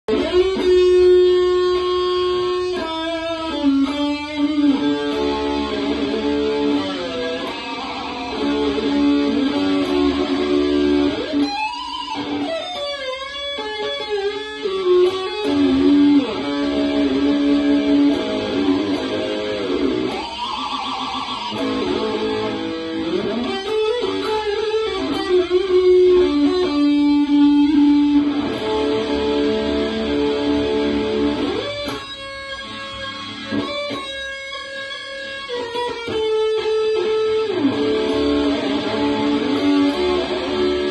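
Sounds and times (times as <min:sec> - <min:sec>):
electric guitar lead lines: 0:00.0 - 0:40.9
guitar tremolo arm pitch swoops: 0:00.1 - 0:40.9.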